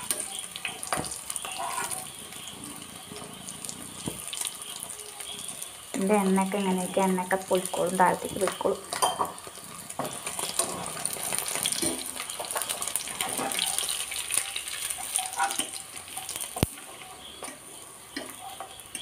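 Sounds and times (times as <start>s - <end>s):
chicken sizzling in oil: 0.0s - 19.0s
strainer scraping a pan: 1.4s - 2.2s.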